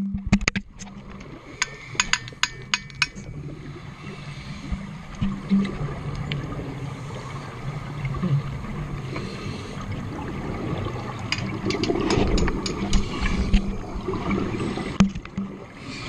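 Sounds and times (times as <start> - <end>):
rush of exhaled bubbles: 3.4 - 16.0
scuba regulator breathing: 3.5 - 5.1, 9.0 - 10.2, 12.8 - 13.9, 15.8 - 16.0.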